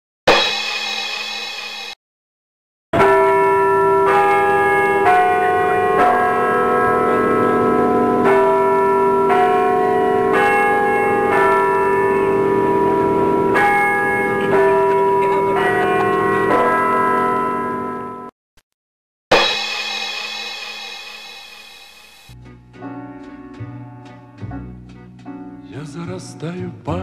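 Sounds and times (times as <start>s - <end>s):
bells pealing: 3.0s - 18.3s.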